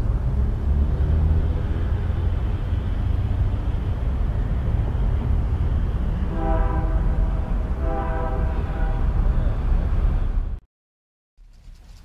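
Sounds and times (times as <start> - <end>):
train horn blasts: 6.2 - 9.2.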